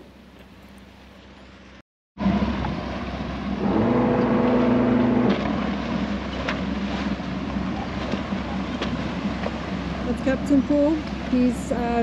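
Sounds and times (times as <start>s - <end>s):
boat engines rumbling: 0.0s - 12.0s
water wash: 2.2s - 12.0s.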